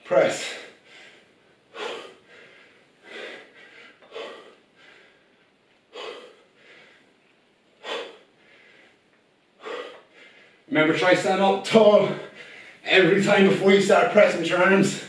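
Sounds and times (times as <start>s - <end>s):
man breathing out hard: 0.4s - 5.3s, 5.9s - 7.1s, 7.8s - 9.0s, 9.6s - 10.7s.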